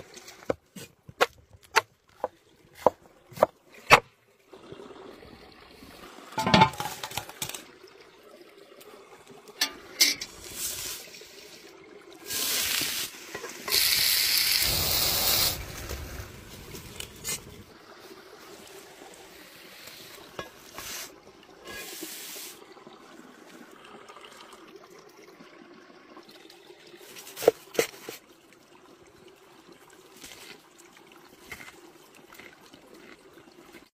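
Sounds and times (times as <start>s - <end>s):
food preparation sounds: 0.0s - 4.2s, 12.2s - 22.6s, 27.0s - 28.2s, 30.1s - 33.9s
stream water trickling: 0.0s - 33.9s
bursts of hissing: 12.3s - 17.5s.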